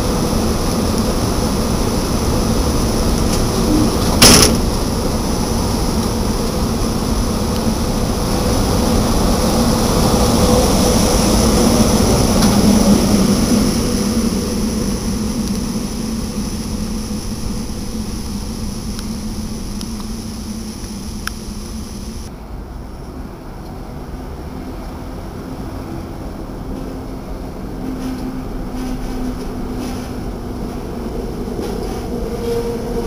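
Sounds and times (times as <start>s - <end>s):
electric train rumble and hum: 0.0s - 33.0s.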